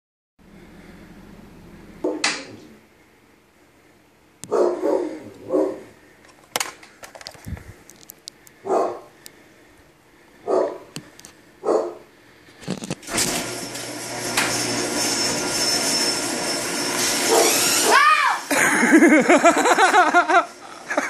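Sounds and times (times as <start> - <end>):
dog barking: 4.5 - 5.9, 8.6 - 9.1, 10.4 - 10.9, 11.6 - 12.1.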